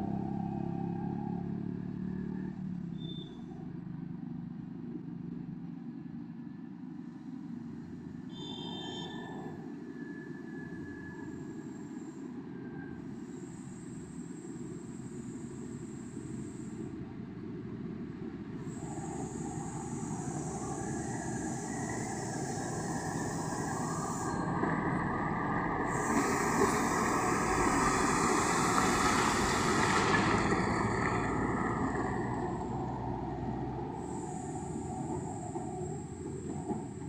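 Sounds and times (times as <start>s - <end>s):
diesel truck passing: 0.0s - 3.2s, 18.2s - 37.0s.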